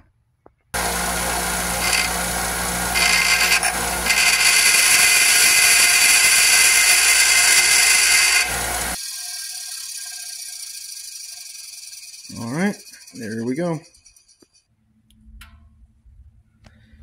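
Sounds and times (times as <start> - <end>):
bench grinder grinding steel: 0.8 - 13.8.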